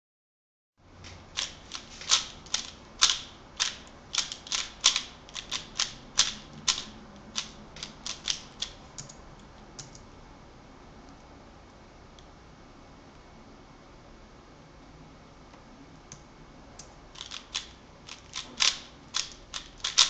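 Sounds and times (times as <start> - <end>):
puzzle cube plastic clicks: 1.4 - 8.8, 17.2 - 20.0.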